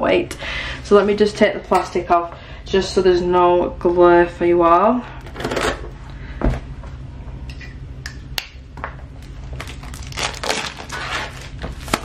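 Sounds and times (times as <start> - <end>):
plastic shrink-wrap crinkling: 9.5 - 12.0.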